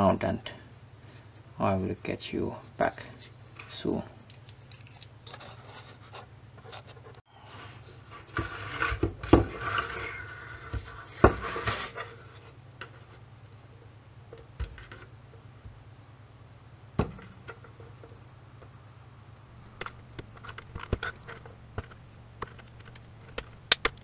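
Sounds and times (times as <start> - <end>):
handling knocks: 17.0 - 18.1.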